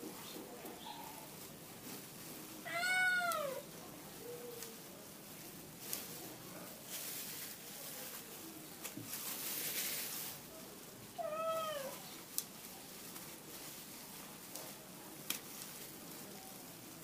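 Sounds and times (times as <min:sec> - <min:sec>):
cat meowing: 0:02.6 - 0:03.6, 0:11.2 - 0:12.0.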